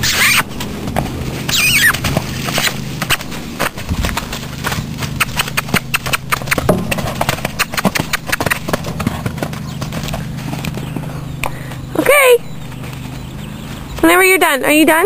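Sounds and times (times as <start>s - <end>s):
hoofbeats on dirt: 0.0s - 15.0s.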